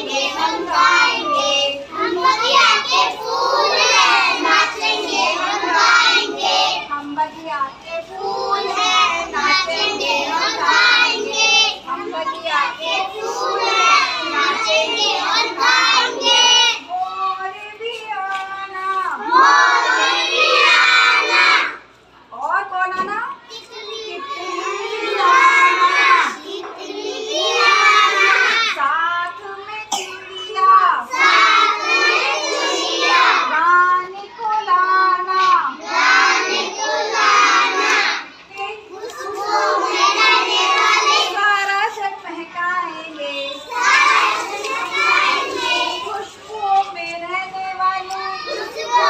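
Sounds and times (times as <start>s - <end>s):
children singing together: 0.0s - 7.0s, 8.0s - 11.9s, 12.6s - 16.9s, 19.1s - 21.9s, 23.7s - 28.8s, 31.0s - 33.5s, 35.2s - 38.3s, 38.9s - 41.4s, 43.3s - 46.6s, 48.0s - 49.0s.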